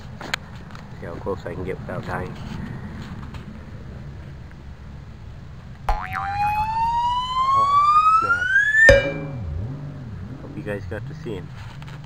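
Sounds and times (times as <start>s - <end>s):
low traffic rumble: 0.0s - 12.0s
rising whistle sound effect: 5.9s - 9.8s.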